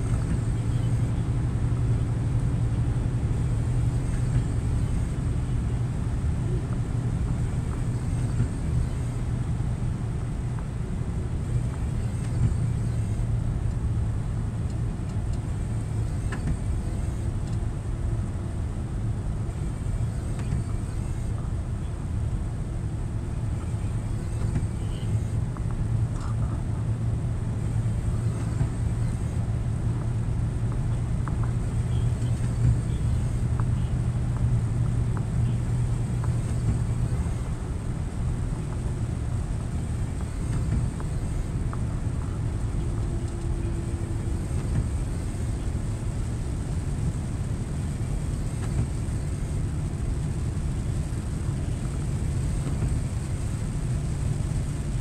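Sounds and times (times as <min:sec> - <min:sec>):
road noise: 0:00.0 - 0:55.0
truck engine drone: 0:00.0 - 0:55.0.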